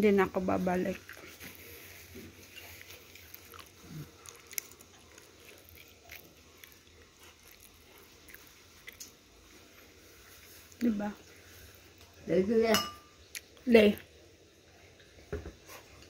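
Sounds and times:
chewing: 0.5 - 12.2.

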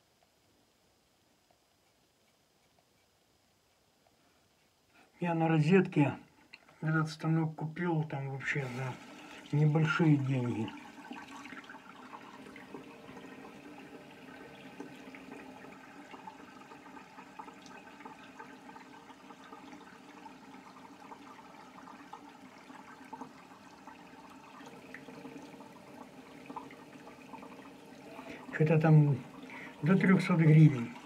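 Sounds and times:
tap water running into sink: 8.4 - 31.0.

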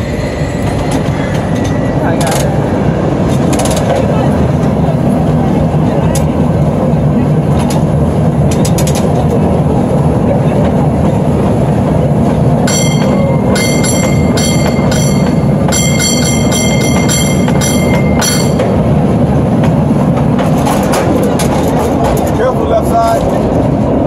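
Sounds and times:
cable car rumbling and rattling: 0.0 - 24.0
cable car bell clanging: 12.6 - 19.7.

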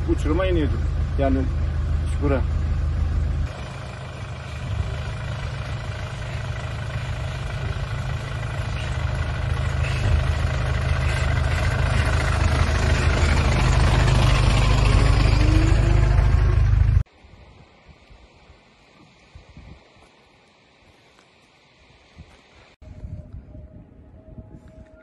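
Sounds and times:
bus diesel engine running: 0.0 - 17.1.

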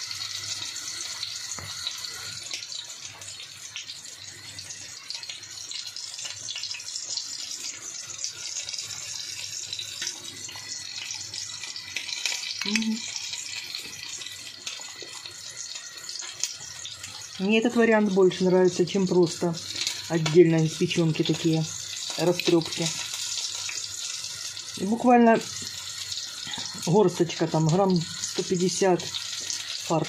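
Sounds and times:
meat sizzling in oil: 0.0 - 30.0
short voiced sound: 12.6 - 13.0.

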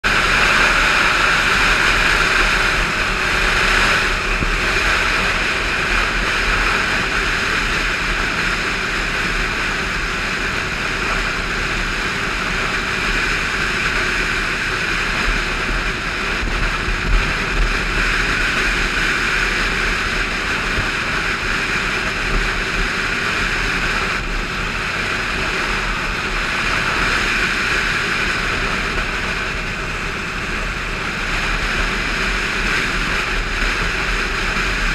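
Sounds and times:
motorcycle engine drone: 0.0 - 34.9
wind rushing over microphone: 0.0 - 34.9.

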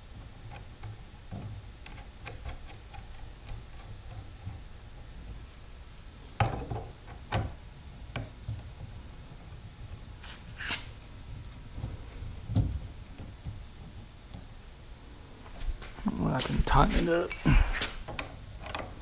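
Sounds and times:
plastic parts clicking and knocking: 18.1 - 19.0.

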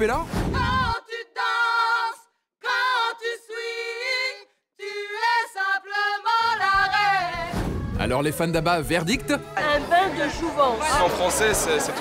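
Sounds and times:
women singing a cappella: 0.6 - 7.6.

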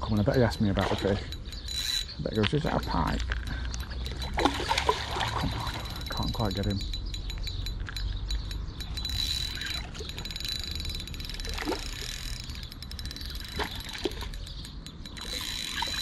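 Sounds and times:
rapid faint clicks: 0.2 - 16.0
fish splashing at water surface: 4.2 - 5.9.

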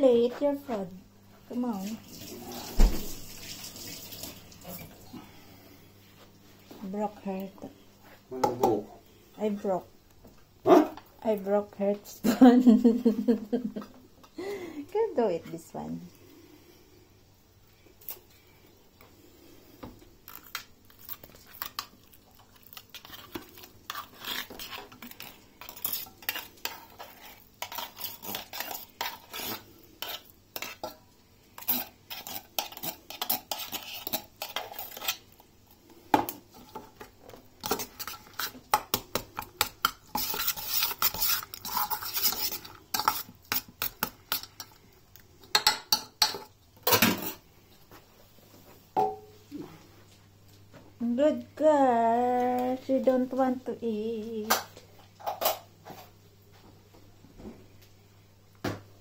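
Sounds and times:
spoon scraping metal tin: 22.8 - 31.0, 31.6 - 35.3, 37.6 - 38.6, 39.6 - 44.8.

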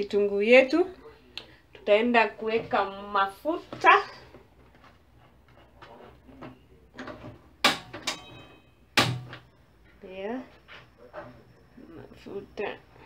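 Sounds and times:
sharp knocks: 7.6 - 9.4
brief ringing tone: 8.2 - 8.8.

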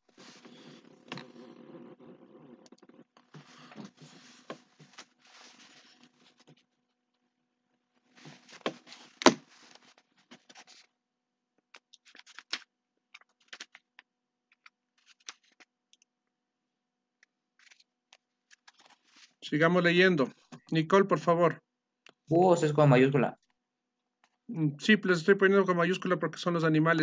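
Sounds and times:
scratchy rustling: 3.3 - 6.6, 8.1 - 10.9.

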